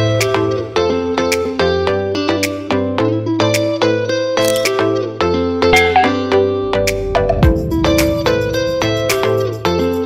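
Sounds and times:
melodic music over steady beat: 0:05.6 - 0:09.5.

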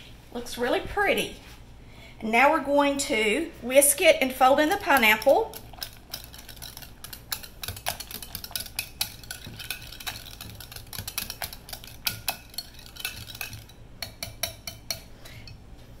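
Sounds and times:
whisk clicking against glass bowl: 0:04.5 - 0:15.1.

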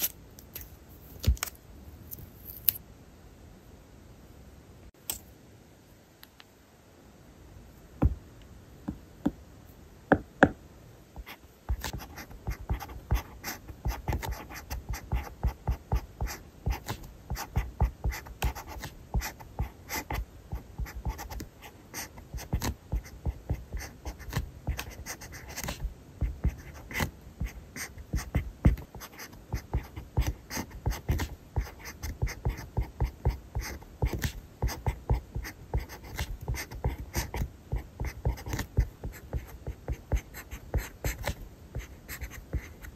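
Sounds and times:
pen scratching on paper: 0:11.2 - 0:42.9.

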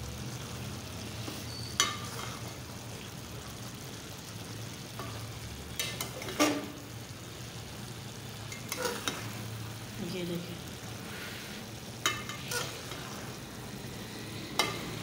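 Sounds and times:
low sizzle: 0:00.0 - 0:15.0
spatula stirring food in pan: 0:01.0 - 0:03.9, 0:04.8 - 0:10.0, 0:10.7 - 0:15.0
spatula scraping metal pan: 0:01.2 - 0:02.6, 0:05.8 - 0:06.8, 0:08.5 - 0:09.4, 0:11.1 - 0:13.4.

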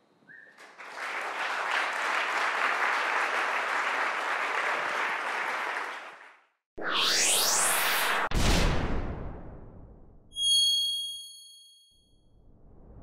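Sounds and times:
audience applauding: 0:00.6 - 0:06.5.

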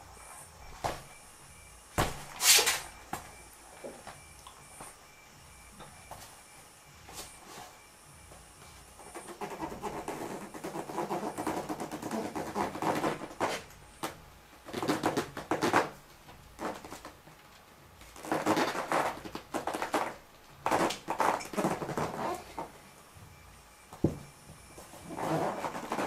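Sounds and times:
boot heel scraping rubber ball: 0:18.2 - 0:22.8, 0:24.8 - 0:26.0.

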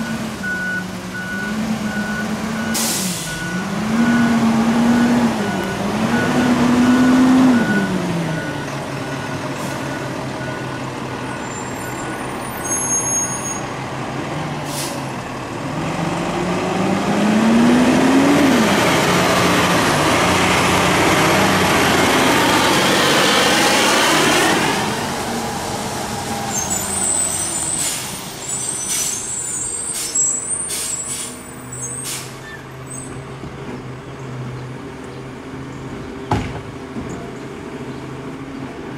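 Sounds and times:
garbage truck engine revving: 0:00.0 - 0:11.2, 0:14.2 - 0:28.2
tyres rushing on road: 0:00.0 - 0:38.9.

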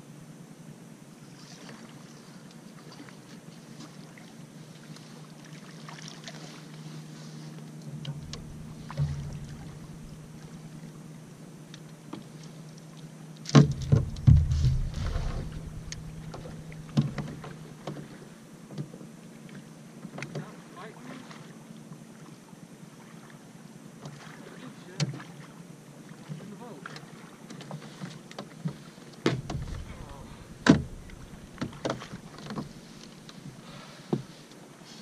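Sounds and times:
faint steady hum: 0:00.0 - 0:35.0
fish knocking against hull: 0:08.0 - 0:10.6, 0:13.6 - 0:18.1, 0:29.3 - 0:32.9
heavy splashing thumps: 0:08.0 - 0:10.8, 0:13.5 - 0:17.8, 0:29.3 - 0:33.2.

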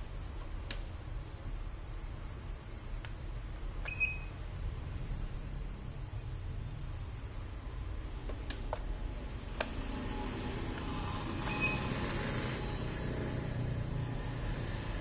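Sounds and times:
short electronic beep: 0:03.9 - 0:04.3, 0:11.4 - 0:11.9.

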